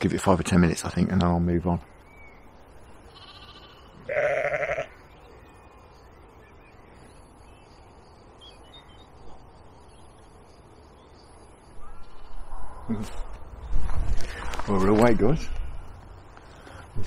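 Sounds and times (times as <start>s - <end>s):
faint outdoor background noise: 0.0s - 17.0s
sheep bleating: 3.1s - 5.0s.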